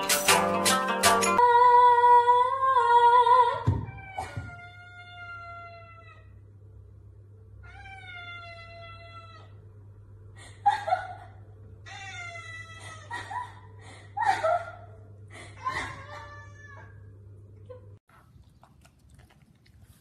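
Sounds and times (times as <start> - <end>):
cat meowing: 7.6 - 9.6, 16.0 - 17.0.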